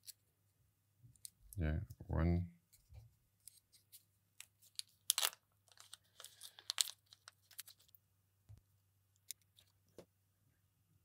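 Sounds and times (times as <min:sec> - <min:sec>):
plastic film crinkling: 0:04.6 - 0:07.9.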